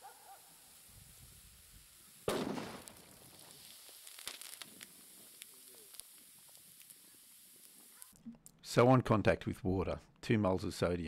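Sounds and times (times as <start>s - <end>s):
small pops and crackles: 2.2s - 8.6s
sharp explosion bang: 2.3s - 2.9s.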